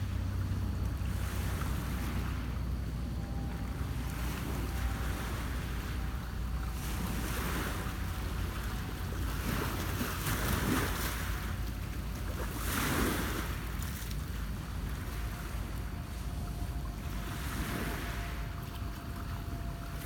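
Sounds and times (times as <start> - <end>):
wind rumble on microphone: 0.0 - 20.0
waves washing against rocks: 4.2 - 20.0.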